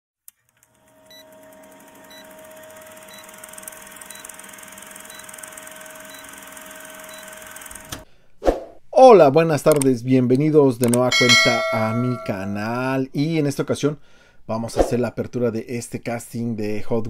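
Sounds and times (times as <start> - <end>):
film projector whirring and crackling: 0.3 - 8.0
short beeps: 11.2 - 12.4.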